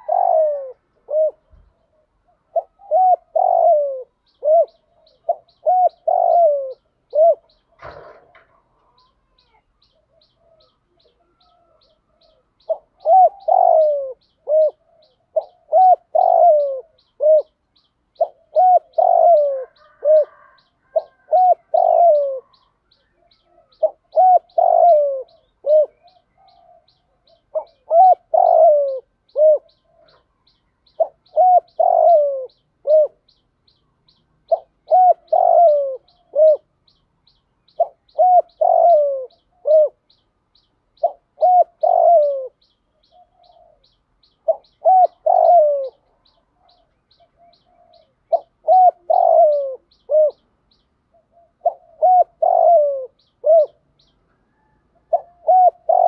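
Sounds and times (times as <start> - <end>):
dove cooing: 0.0 - 33.4, 34.1 - 36.8, 37.7 - 40.2, 41.0 - 50.5, 51.1 - 56.0.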